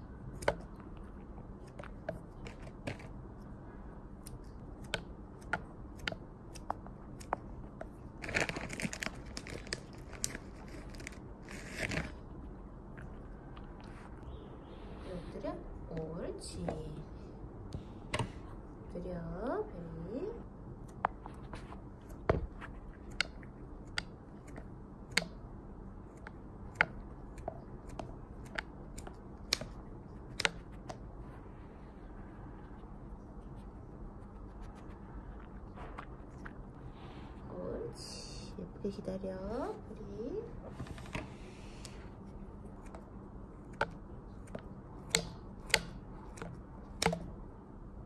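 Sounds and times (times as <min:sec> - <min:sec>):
scissors snipping: 0:42.8 - 0:47.3.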